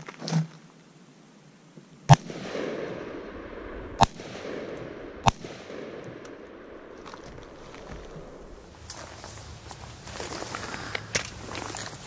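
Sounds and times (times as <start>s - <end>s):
rifle shots: 2.1s - 8.5s
rolling echo: 2.1s - 8.7s.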